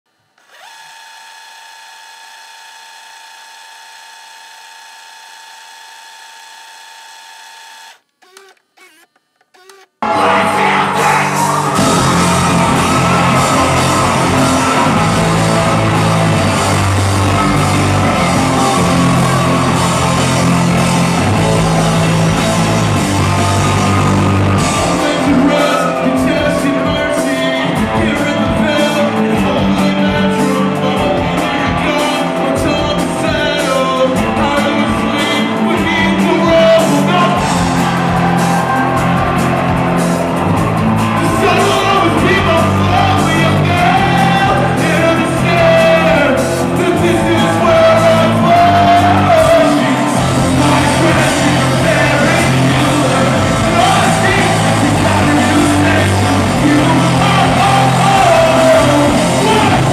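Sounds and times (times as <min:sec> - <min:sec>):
person yelling and singing: 0:10.0 - 0:21.6, 0:24.6 - 0:39.1, 0:41.2 - 0:59.9
live rock band: 0:10.0 - 0:59.9.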